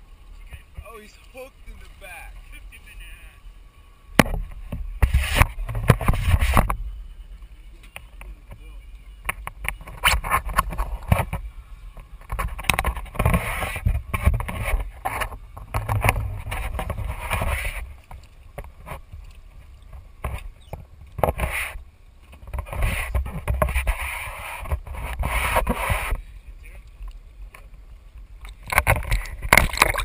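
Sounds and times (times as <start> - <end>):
constant low rumble: 0.0 - 30.0
water splashing: 28.4 - 30.0.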